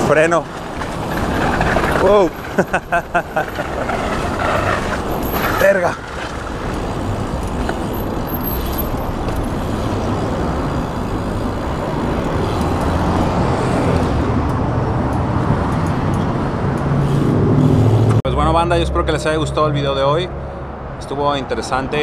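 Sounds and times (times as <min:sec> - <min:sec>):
bike tyres rolling: 0:00.0 - 0:14.3
street traffic: 0:00.0 - 0:22.0.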